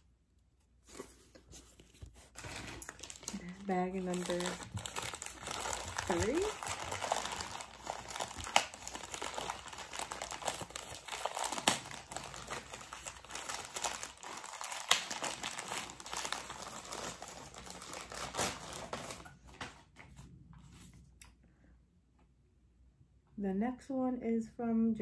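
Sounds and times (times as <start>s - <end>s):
plastic bag crinkling: 2.2s - 19.6s.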